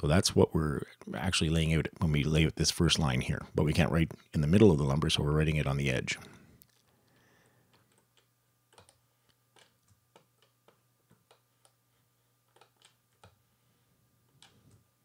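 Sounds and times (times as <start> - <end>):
low steady hum: 0.0 - 15.0
computer mouse clicks: 7.7 - 9.0, 12.5 - 13.4.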